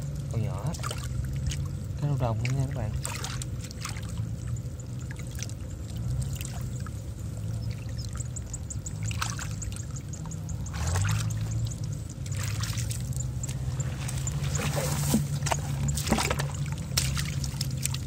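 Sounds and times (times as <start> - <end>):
wet steps sloshing through mud: 2.4 - 7.0, 9.0 - 18.0
hands splashing in muddy water: 12.2 - 18.0.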